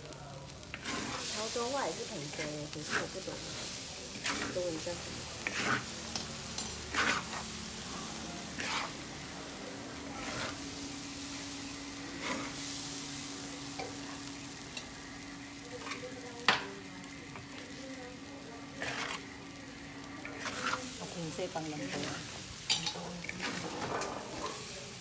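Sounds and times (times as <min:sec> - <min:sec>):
food sizzling in a wok: 0:00.0 - 0:25.0
spatula scraping and knocking pan: 0:06.8 - 0:07.4, 0:08.6 - 0:08.9, 0:18.8 - 0:19.2.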